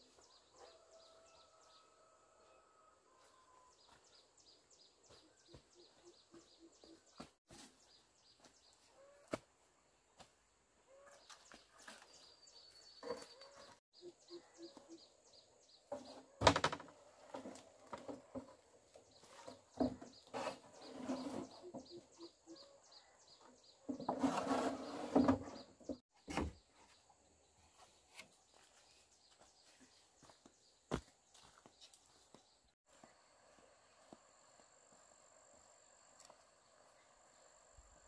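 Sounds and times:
bird chirping: 0:10.9 - 0:16.5, 0:19.0 - 0:24.2.

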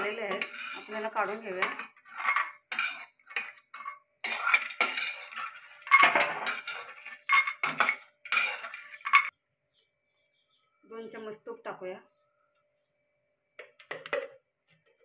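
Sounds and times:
metal spatula scraping a pan: 0:00.0 - 0:09.3.

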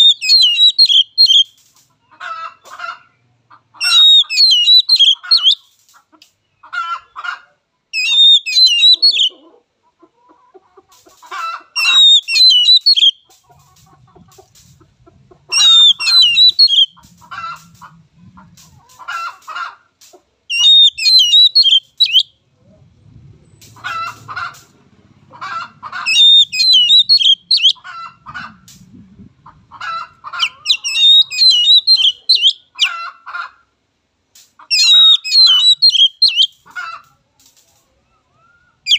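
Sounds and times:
bird chattering: 0:00.0 - 0:01.5, 0:03.7 - 0:05.6, 0:08.0 - 0:09.4, 0:11.8 - 0:13.3, 0:15.5 - 0:18.9, 0:20.5 - 0:22.3, 0:25.3 - 0:28.6, 0:29.8 - 0:33.0, 0:34.6 - 0:36.9
bird singing whistled notes: 0:00.0 - 0:01.5, 0:03.8 - 0:05.6, 0:08.0 - 0:09.3, 0:11.8 - 0:13.2, 0:15.6 - 0:17.0, 0:20.5 - 0:22.4, 0:26.1 - 0:27.8, 0:30.7 - 0:32.6, 0:34.7 - 0:36.6.

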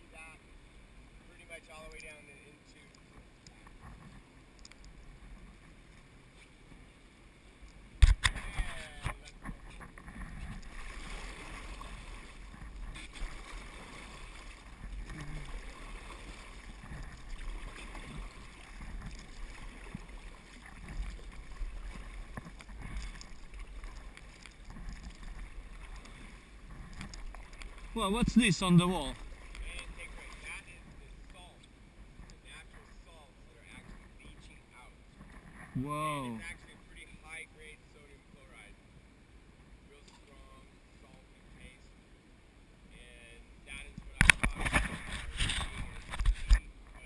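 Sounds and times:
water splashing against raft: 0:07.9 - 0:33.1, 0:43.7 - 0:47.0.

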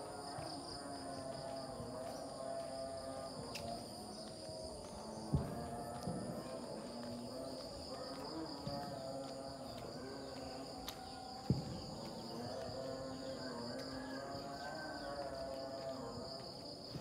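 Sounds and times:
faint distant voices: 0:00.0 - 0:17.0
insects droning: 0:00.0 - 0:17.0
thump: 0:05.3 - 0:06.3, 0:11.4 - 0:11.8.

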